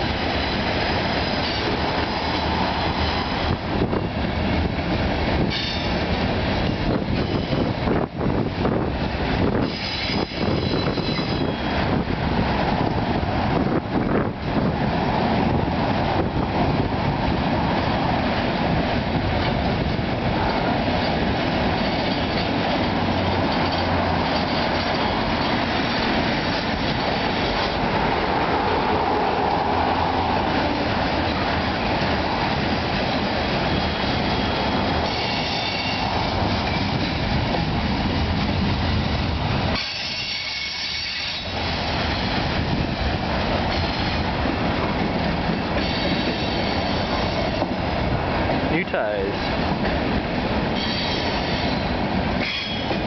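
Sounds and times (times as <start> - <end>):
train wheels rumbling on rail: 0.0 - 53.0
faint high wheel squeal: 9.6 - 11.8, 34.4 - 36.1, 39.8 - 41.5, 45.8 - 47.4, 50.8 - 52.9.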